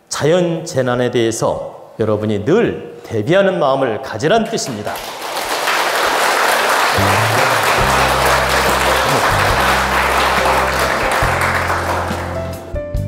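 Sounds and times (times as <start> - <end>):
applause: 4.9 - 12.7
closing music with low bass: 7.0 - 13.0.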